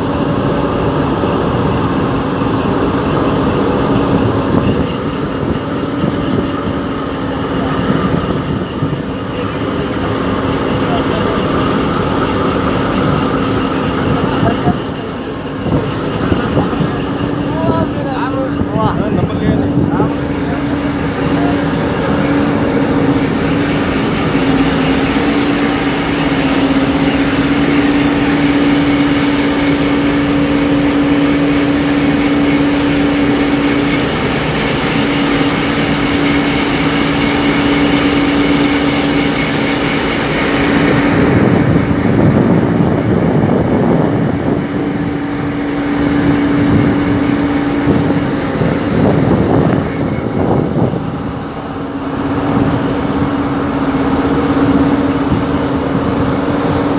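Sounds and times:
boat engine droning: 0.0s - 56.9s
water rushing: 0.0s - 56.9s
wind buffeting microphone: 0.0s - 56.9s.

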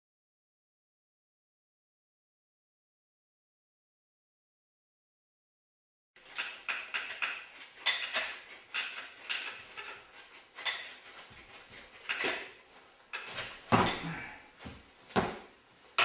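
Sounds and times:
wooden chairs creaking and knocking: 6.2s - 16.0s.

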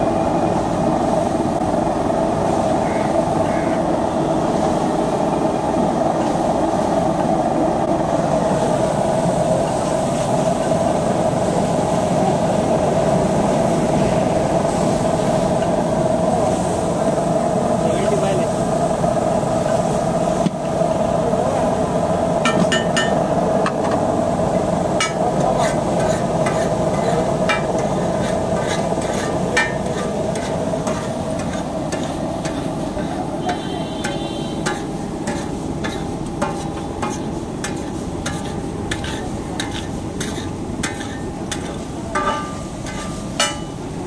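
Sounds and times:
food sizzling: 16.4s - 44.0s
metal spatula scraping a griddle: 25.0s - 43.8s.

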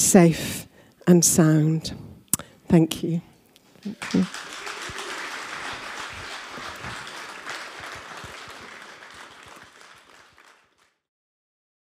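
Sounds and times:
congregation applauding: 3.8s - 11.0s.

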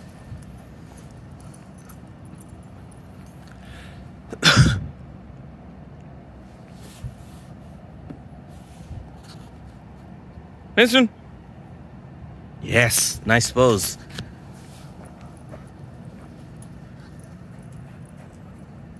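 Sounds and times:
faint outdoor background: 0.0s - 18.9s
person sneezing: 4.3s - 4.9s.

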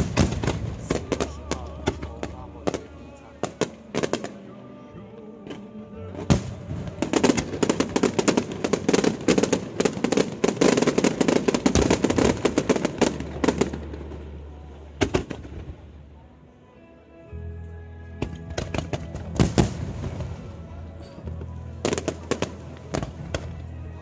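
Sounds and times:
fireworks bangs and crackles: 0.0s - 4.5s, 6.2s - 15.9s, 18.2s - 20.5s, 21.3s - 24.0s.

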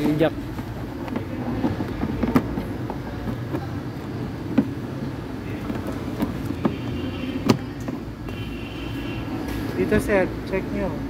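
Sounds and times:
sharp knocks and clicks: 0.0s - 8.4s.

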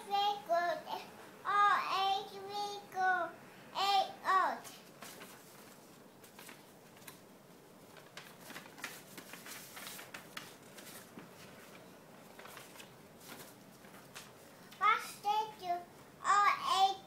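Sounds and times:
paper rustling and crinkling: 4.6s - 14.8s.

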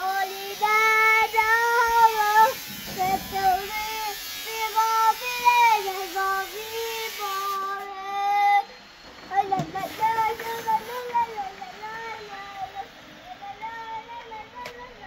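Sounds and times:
child singing wordless tune: 0.0s - 15.0s.

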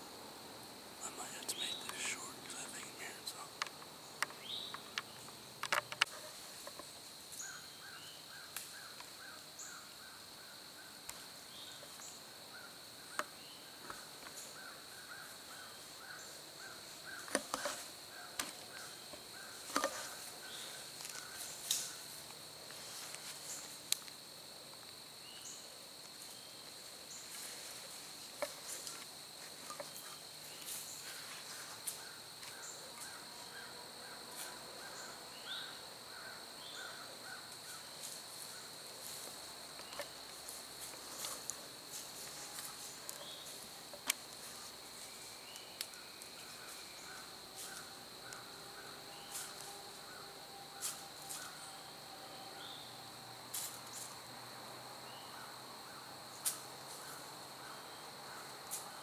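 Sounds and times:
insect drone: 0.0s - 59.0s
sharp snaps and rustles: 3.6s - 6.9s, 17.1s - 24.2s, 38.0s - 48.4s, 53.5s - 54.2s, 56.4s - 57.1s.

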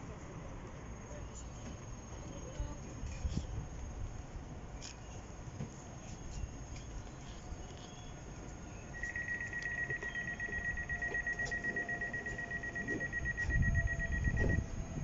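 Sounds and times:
high-pitched electronic warning beep: 9.0s - 14.8s.

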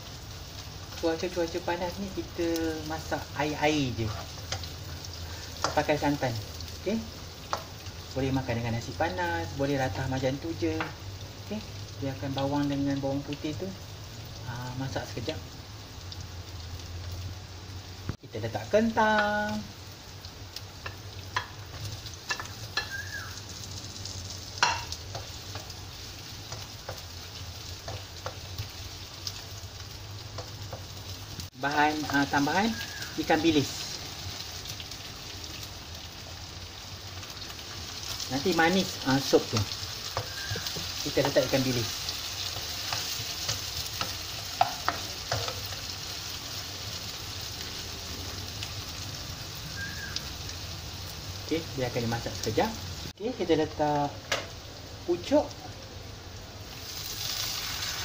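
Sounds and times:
food sizzling in a pan: 0.0s - 58.0s
spatula tapping and scraping pan: 7.5s - 7.8s, 20.8s - 23.0s, 24.6s - 25.7s, 42.5s - 45.8s.

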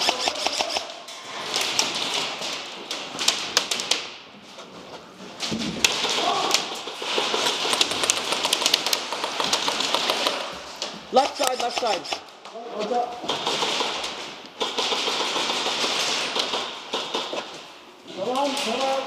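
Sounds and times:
airsoft guns firing: 0.0s - 4.2s, 5.8s - 10.5s, 11.1s - 12.3s, 13.2s - 17.6s
pellets striking plywood walls: 0.0s - 12.2s, 13.1s - 19.0s.

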